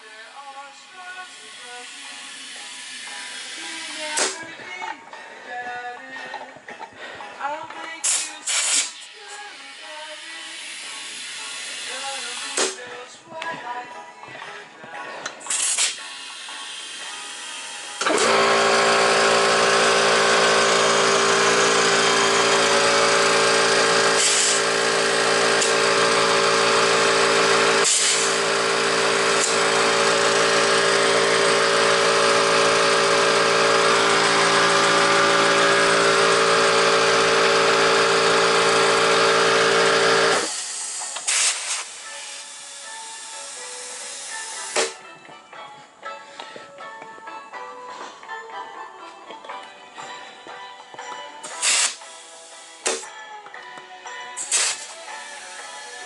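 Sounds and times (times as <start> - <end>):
air compressor humming and hissing: 1.2 - 4.5, 15.4 - 45.0, 51.4 - 53.1, 54.4 - 56.0.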